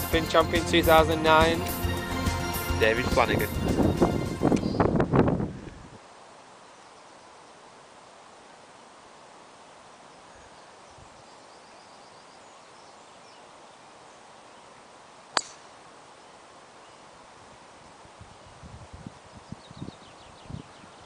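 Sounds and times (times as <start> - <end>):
faint outdoor background noise: 4.3 - 21.0
golf club striking ball: 15.4 - 15.8.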